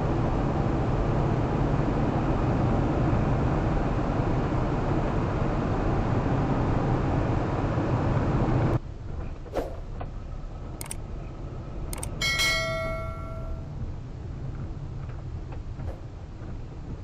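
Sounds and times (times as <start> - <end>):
mouse-click sound effects: 11.9 - 12.1
notification bell ding: 12.2 - 13.8.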